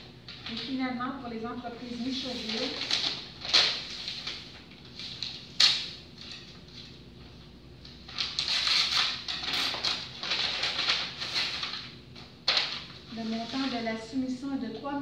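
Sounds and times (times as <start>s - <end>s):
paper and envelope rustling: 1.7s - 7.0s, 7.9s - 14.2s
paper crinkle: 1.8s - 7.0s, 8.1s - 11.9s, 12.5s - 13.9s.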